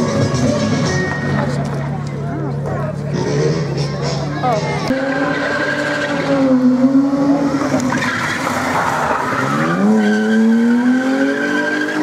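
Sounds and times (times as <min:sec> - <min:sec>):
car engine at high revs: 0:04.8 - 0:12.0.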